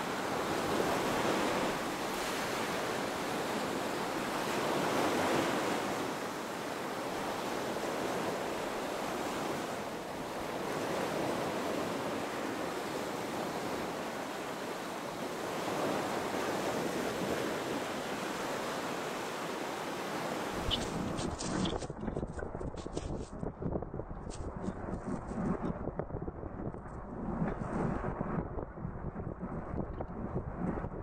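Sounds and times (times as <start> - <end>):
wind: 0.0 - 31.0
rushing water: 13.1 - 21.9.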